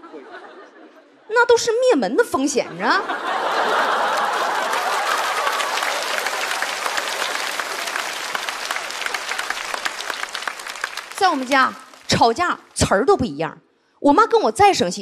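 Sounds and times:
crowd noise: 0.0s - 1.4s, 2.7s - 13.0s
audience clapping: 3.2s - 12.8s.

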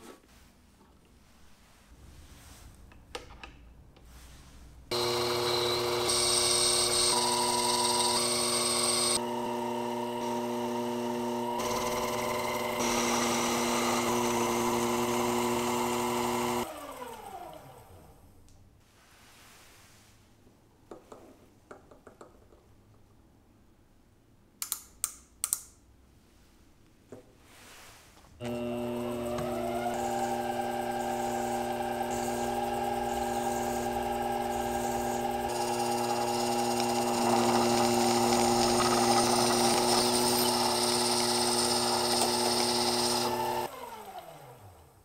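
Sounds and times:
lathe motor whine: 4.9s - 17.8s, 28.4s - 44.8s.

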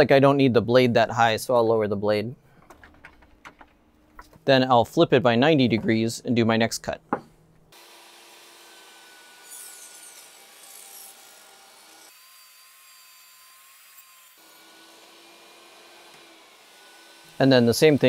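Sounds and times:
table saw cutting wood: 7.7s - 18.0s.

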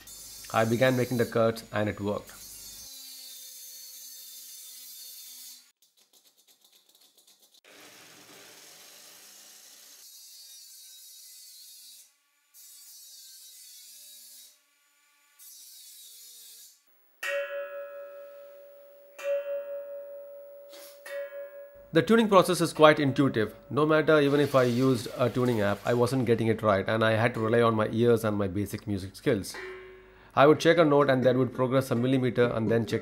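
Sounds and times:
rotary tool cutting steel: 0.0s - 5.7s, 7.7s - 16.9s, 24.1s - 26.1s
steel tongue tapped ringing: 17.2s - 22.0s, 29.5s - 30.2s.

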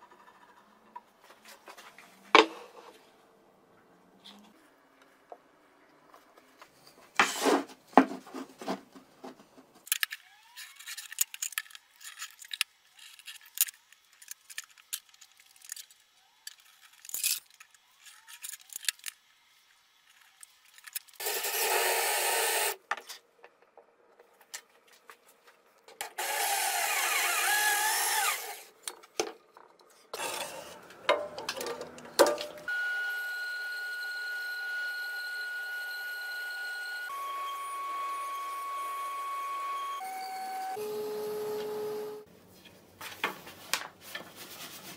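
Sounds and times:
power tool cutting wood: 21.2s - 22.8s, 26.2s - 28.7s, 32.7s - 42.3s
band saw whining: 32.5s - 42.3s.

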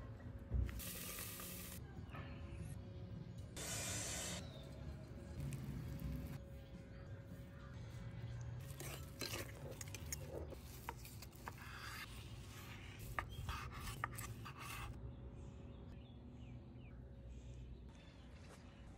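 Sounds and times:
fork scraping metal pot: 8.6s - 10.0s.

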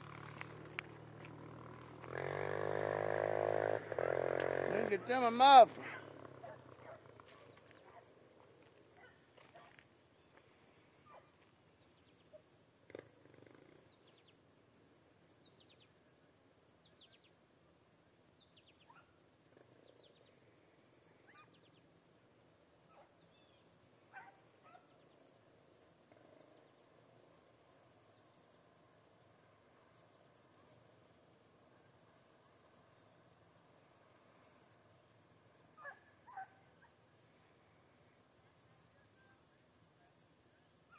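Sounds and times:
crickets chirping: 0.0s - 40.9s
distant dogs baying: 1.8s - 9.8s, 24.1s - 25.0s, 35.8s - 37.0s.

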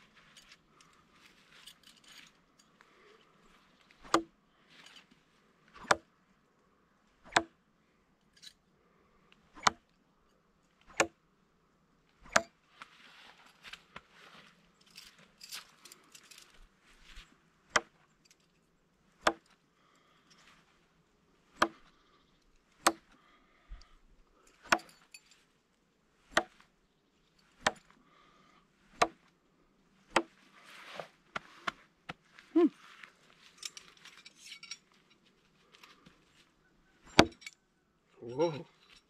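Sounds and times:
knives thunking into wood: 37.1s - 37.5s.

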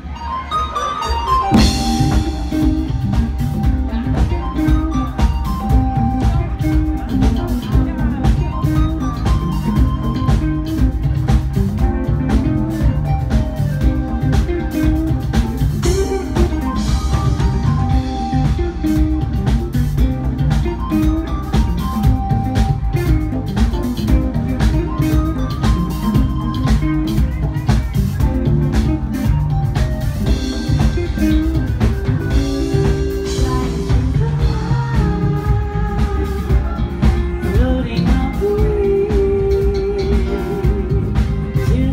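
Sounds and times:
bass guitar: 0.0s - 41.9s
drum kit: 0.0s - 41.9s
electric guitar: 0.0s - 41.9s
keyboards: 0.0s - 41.9s
person singing with vibrato: 32.4s - 41.9s.

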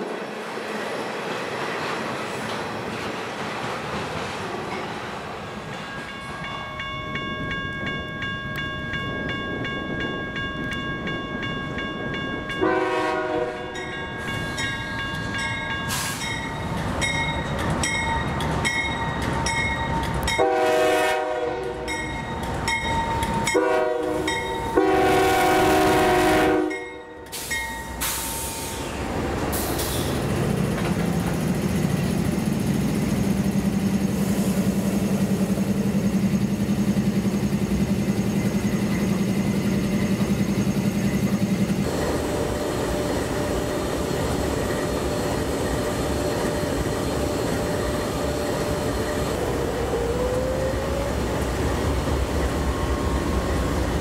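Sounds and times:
locomotive bell ringing: 5.7s - 20.9s, 21.8s - 25.0s, 26.6s - 28.7s
train horn blasts: 12.6s - 13.8s, 20.4s - 22.0s, 23.5s - 27.3s.

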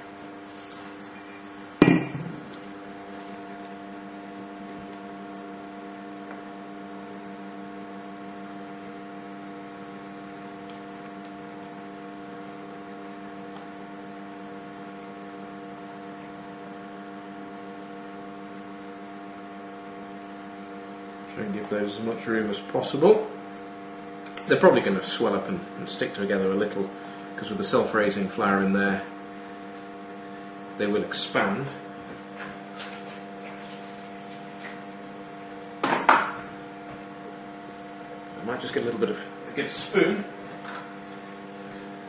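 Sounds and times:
steady electrical hum: 0.0s - 42.0s.

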